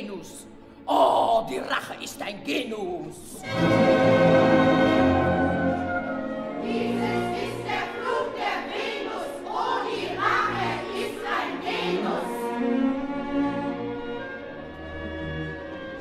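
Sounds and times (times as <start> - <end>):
orchestra playing: 3.3 - 16.0.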